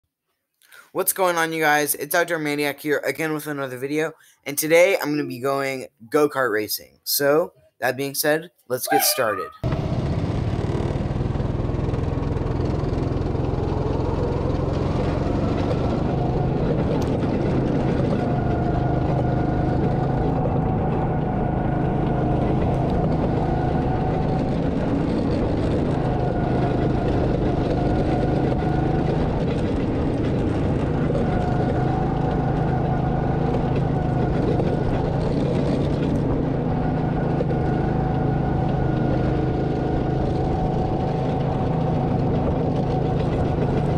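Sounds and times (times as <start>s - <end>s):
high engine whine: 8.9s - 43.9s
go-kart engine running: 9.6s - 43.9s.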